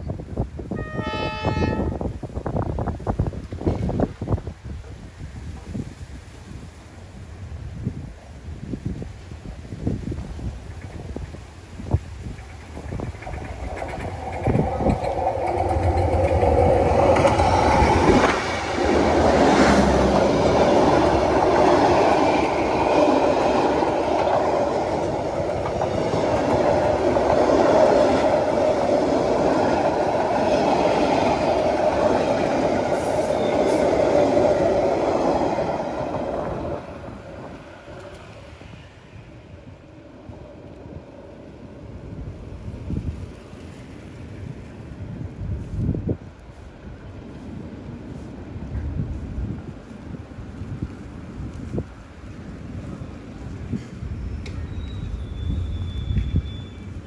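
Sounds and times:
diesel locomotive engine rumbling: 0:07.1 - 0:57.0
train wheels clattering on rails: 0:10.1 - 0:38.4.

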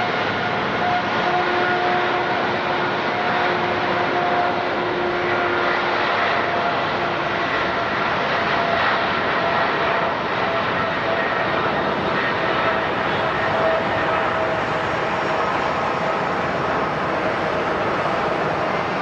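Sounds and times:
jet engines rushing with whine: 0:00.0 - 0:19.0.

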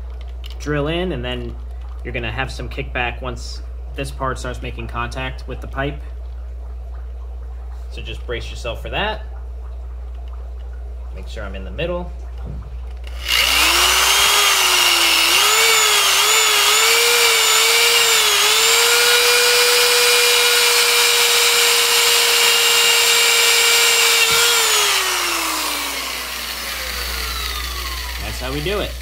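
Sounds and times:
electric drill cutting plastic pipe: 0:13.0 - 0:29.0.

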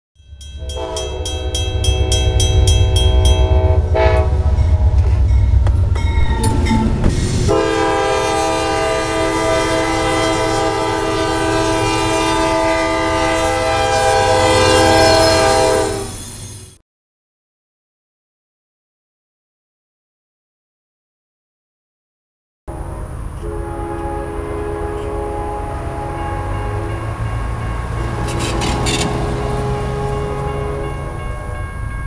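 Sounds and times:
locomotive horn blast: 0:00.6 - 0:16.2, 0:22.7 - 0:31.6
heavy low rumble: 0:01.2 - 0:08.1.

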